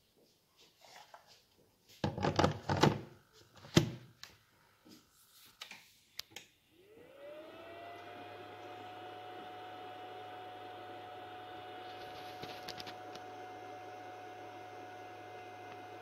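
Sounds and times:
cooling fan whine: 0:06.8 - 0:16.0.

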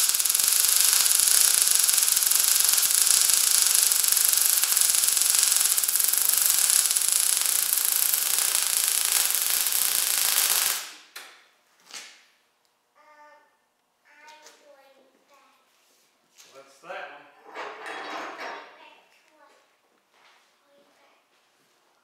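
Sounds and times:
welding arc crackling: 0:00.0 - 0:11.2.

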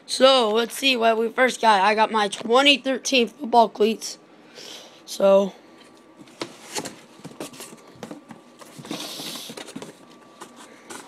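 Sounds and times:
cardboard scraping slide: 0:08.6 - 0:11.0.

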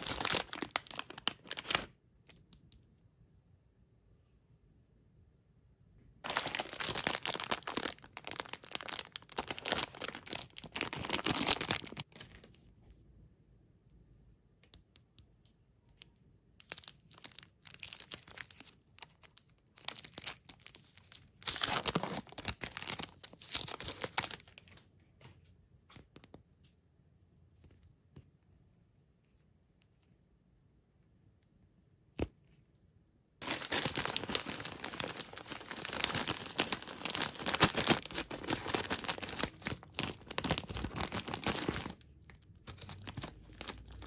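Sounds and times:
plastic wrappers crinkling and tearing: 0:00.0 - 0:01.9, 0:06.2 - 0:12.5, 0:16.6 - 0:24.9, 0:33.4 - 0:44.0
light crinkles and clicks: 0:23.0 - 0:26.8.

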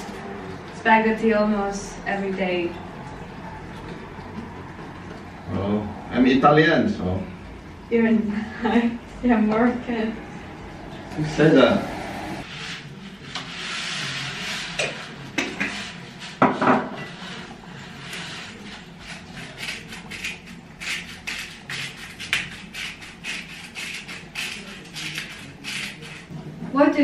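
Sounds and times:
spatula scraping a frying pan: 0:12.4 - 0:26.3.

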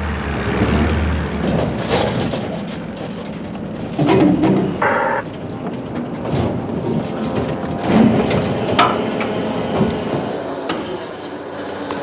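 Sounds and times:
boat engines running: 0:00.0 - 0:12.0
metallic clanks and rattles: 0:01.4 - 0:10.3.

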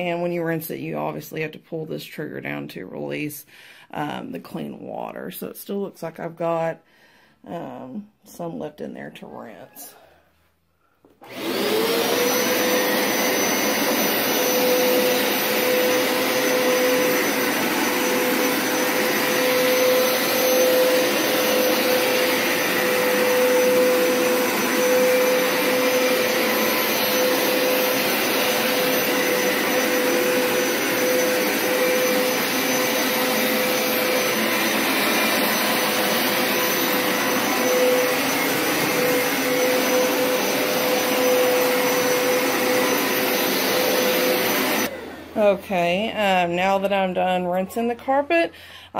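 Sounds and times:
carpet washer motor whining: 0:11.1 - 0:45.5
rushing suction: 0:11.4 - 0:44.9.

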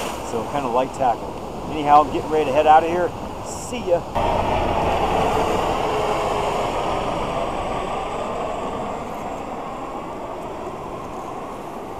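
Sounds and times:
helicopter flying past: 0:04.2 - 0:11.9.

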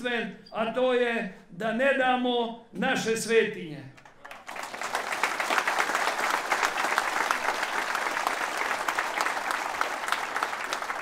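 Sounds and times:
crowd applauding: 0:04.0 - 0:11.0.

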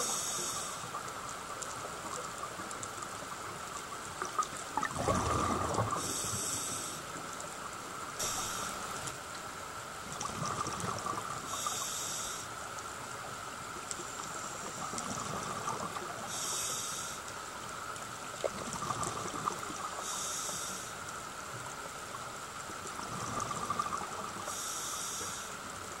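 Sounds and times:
hissing regulator inhale: 0:00.0 - 0:01.0, 0:05.9 - 0:07.2, 0:08.2 - 0:09.0, 0:11.4 - 0:12.6, 0:16.2 - 0:17.3, 0:19.9 - 0:21.0, 0:24.4 - 0:25.6
rumble of exhaled bubbles: 0:04.2 - 0:06.4, 0:10.0 - 0:11.5, 0:14.6 - 0:16.3, 0:18.3 - 0:20.0, 0:22.7 - 0:24.5.

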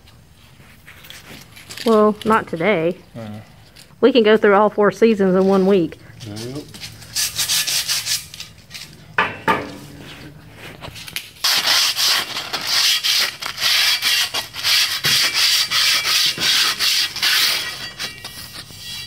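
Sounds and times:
sandpaper rubbing on steel: 0:06.4 - 0:08.5, 0:11.4 - 0:19.0.

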